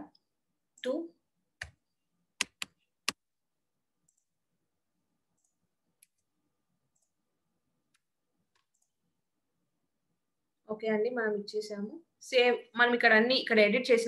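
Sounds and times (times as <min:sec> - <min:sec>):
mouse and keyboard clicks: 0:02.4 - 0:03.2, 0:07.9 - 0:09.0.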